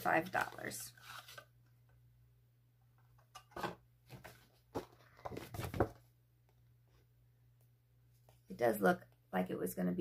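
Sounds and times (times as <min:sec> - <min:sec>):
paper packaging rustling: 0:00.0 - 0:01.5.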